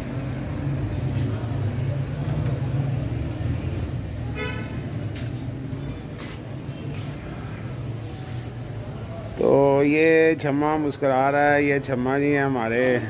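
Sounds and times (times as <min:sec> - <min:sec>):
city traffic rumble: 0:00.0 - 0:13.0
vehicle horn toot: 0:04.3 - 0:04.9.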